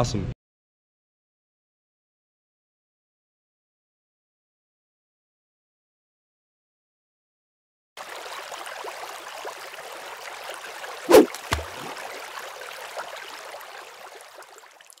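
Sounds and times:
water-like rushing noise: 0:08.0 - 0:15.0.

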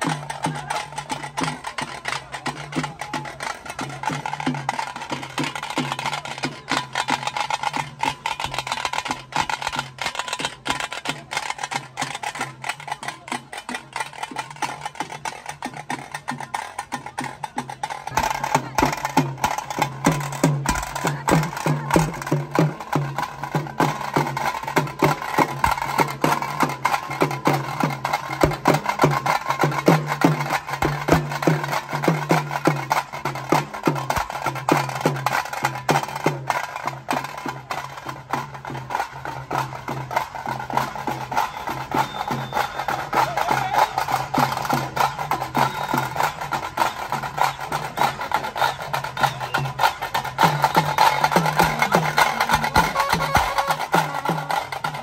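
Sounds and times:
drums struck with sticks: 0:00.0 - 0:55.0.

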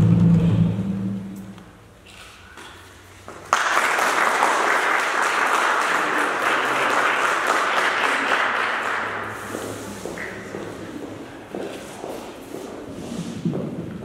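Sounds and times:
applause: 0:03.4 - 0:10.4.

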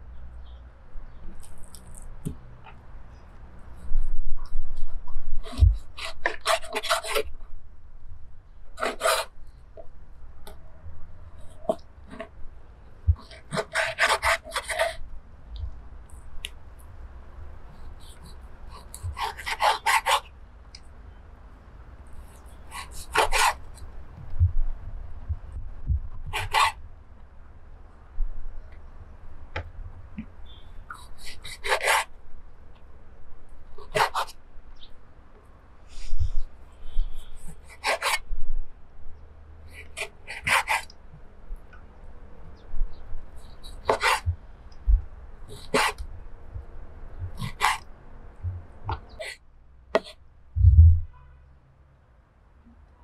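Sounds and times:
knife cutting meat on board: 0:33.9 - 0:34.3, 0:43.8 - 0:44.2, 0:45.5 - 0:46.0, 0:47.3 - 0:47.8
knife slicing meat on board: 0:43.8 - 0:44.2, 0:45.6 - 0:46.0.

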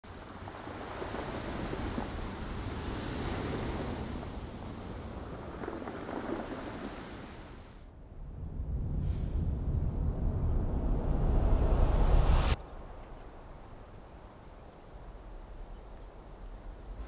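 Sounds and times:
ocean waves breaking: 0:00.1 - 0:07.9.

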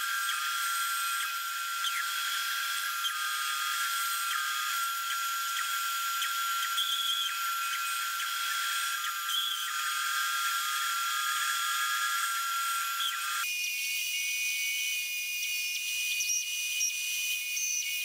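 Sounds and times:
bandsaw cutting wood: 0:00.0 - 0:13.4.

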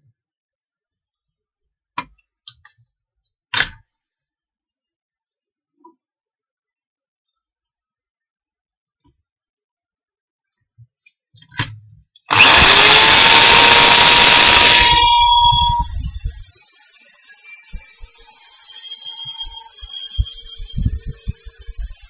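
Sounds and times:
electric drill whining: 0:12.3 - 0:22.0.

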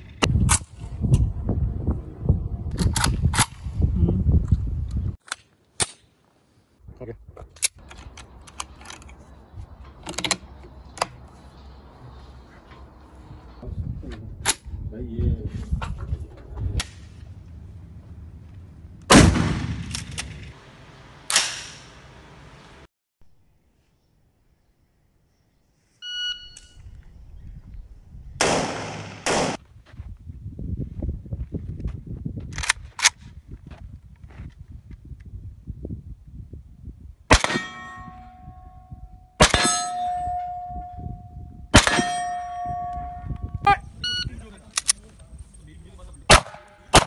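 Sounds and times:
rifle shots: 0:19.1 - 0:20.6, 0:28.4 - 0:29.6, 0:37.3 - 0:37.8, 0:46.3 - 0:47.0
gunshots with echo: 0:28.4 - 0:29.6
steel target ringing: 0:37.4 - 0:43.6.

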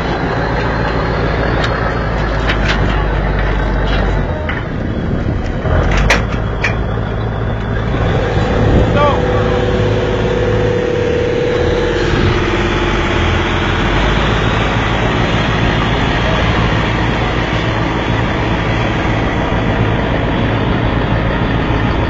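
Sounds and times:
boat engine running: 0:00.0 - 0:22.0.

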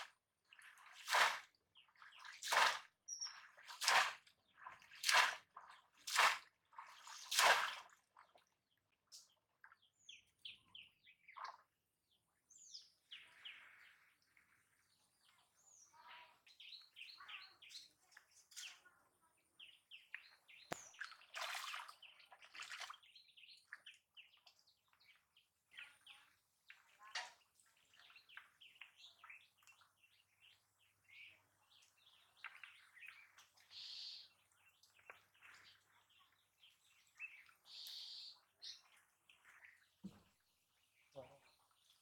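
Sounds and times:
soft water splashes: 0:00.0 - 0:42.0
small birds chirping: 0:03.1 - 0:03.6, 0:08.2 - 0:42.0.

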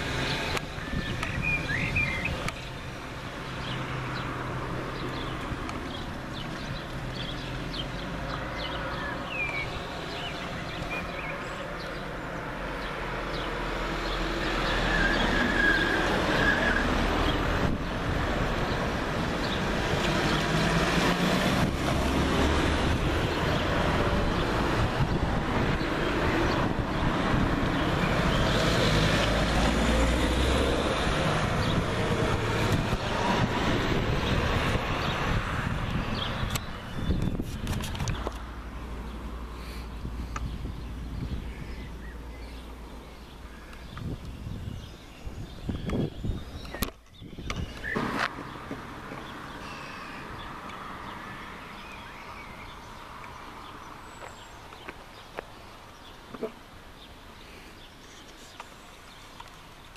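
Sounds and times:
wind rumbling on microphone: 0:00.0 - 0:11.6, 0:16.0 - 0:49.5
road traffic: 0:00.0 - 0:59.9.

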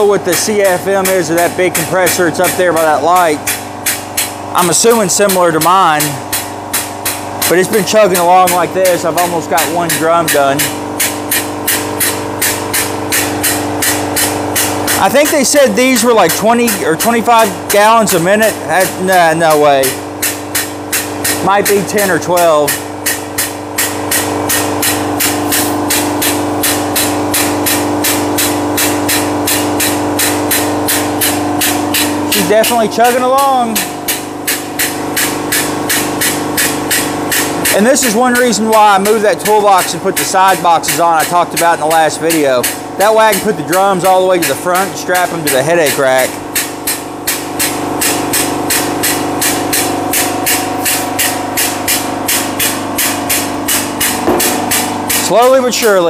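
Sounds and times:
diaphragm pump chugging: 0:00.0 - 0:56.0
steady hum: 0:00.0 - 0:56.0
exhaust air hiss: 0:22.7 - 0:32.6.

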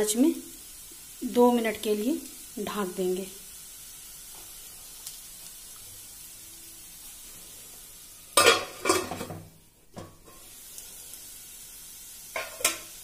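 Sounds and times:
vegetables sizzling in a pan: 0:00.0 - 0:13.0
metal lid clattering against pan: 0:08.4 - 0:09.4.

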